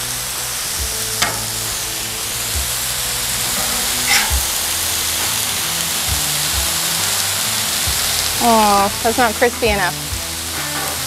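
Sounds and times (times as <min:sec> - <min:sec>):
burgers sizzling on griddle: 0:00.0 - 0:11.0
metal spatula scraping griddle: 0:00.4 - 0:08.3.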